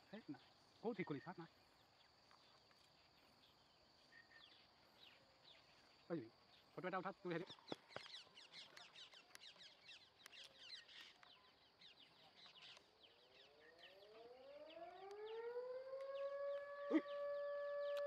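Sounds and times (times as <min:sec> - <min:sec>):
siren wailing: 0:13.4 - 0:18.0.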